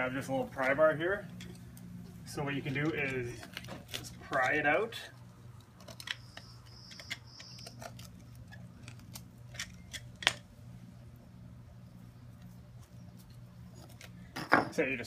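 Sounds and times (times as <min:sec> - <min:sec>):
concrete clicking and scraping: 0:02.5 - 0:10.4.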